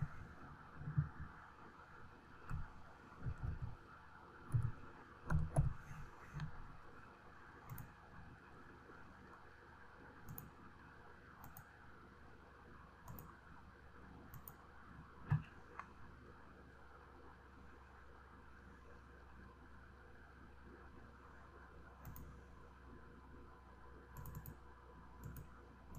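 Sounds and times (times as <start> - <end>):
mouse clicks: 7.7 - 8.0, 10.2 - 10.5, 11.4 - 11.7, 13.0 - 13.3, 14.3 - 14.6, 22.0 - 22.3, 24.2 - 24.6, 25.2 - 25.5.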